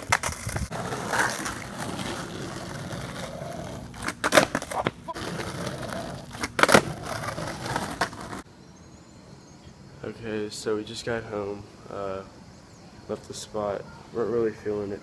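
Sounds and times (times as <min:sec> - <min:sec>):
skateboard deck clacking: 0:00.0 - 0:08.4
skateboard wheels rolling on asphalt: 0:00.0 - 0:08.5.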